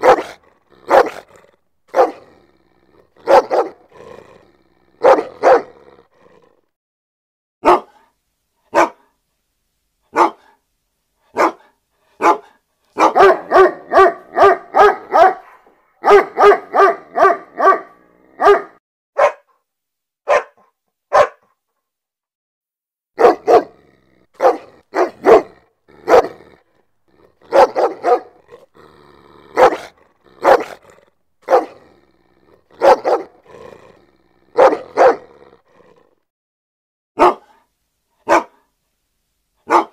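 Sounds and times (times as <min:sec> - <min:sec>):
dog barking: 0:00.0 - 0:02.3, 0:03.2 - 0:03.9, 0:05.0 - 0:05.8, 0:07.6 - 0:08.1, 0:08.7 - 0:09.2, 0:10.1 - 0:10.6, 0:11.3 - 0:19.6, 0:20.2 - 0:21.6, 0:23.2 - 0:23.8, 0:24.4 - 0:26.6, 0:27.4 - 0:28.6, 0:29.5 - 0:31.9, 0:32.6 - 0:33.6, 0:34.5 - 0:35.4, 0:37.2 - 0:38.7, 0:39.6 - 0:39.9.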